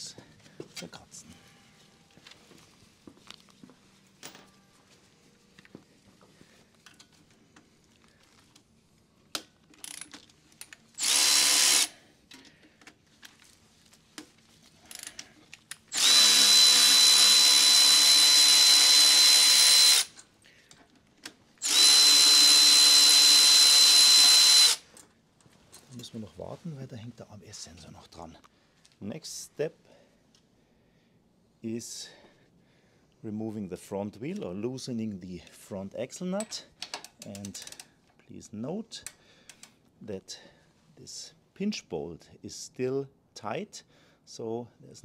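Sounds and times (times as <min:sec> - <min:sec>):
electric ratchet motor whine: 0:11.0 - 0:11.9, 0:15.9 - 0:20.1, 0:21.6 - 0:24.8.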